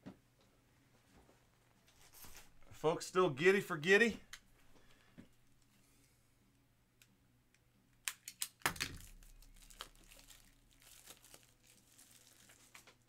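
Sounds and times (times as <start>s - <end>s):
packaging crinkling: 8.1s - 13.0s.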